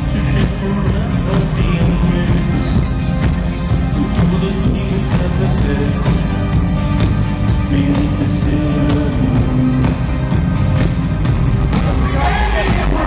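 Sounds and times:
live band playing pop-rock: 0.0 - 13.0
person singing: 7.5 - 10.4.

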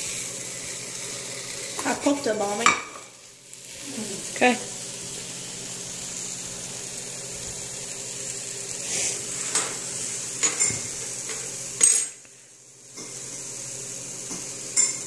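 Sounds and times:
hot dogs sizzling in a pan: 0.0 - 15.0.

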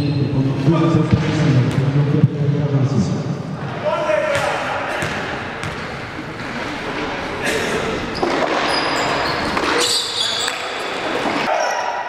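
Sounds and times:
basketball bouncing: 4.3 - 7.1
sneakers squeaking on floor: 4.3 - 11.8.

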